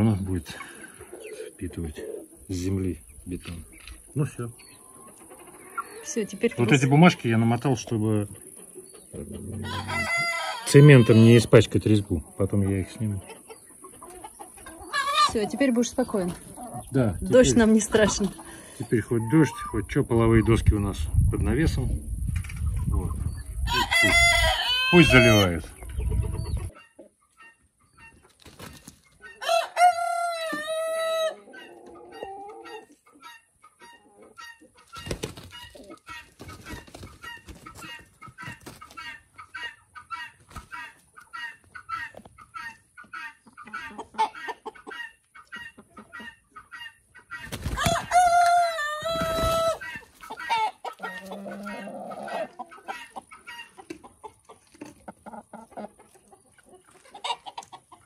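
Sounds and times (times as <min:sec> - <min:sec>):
chickens clucking: 0:00.0 - 0:58.0
rooster crowing: 0:09.6 - 0:11.3, 0:23.7 - 0:25.5, 0:29.4 - 0:31.4, 0:47.8 - 0:49.9.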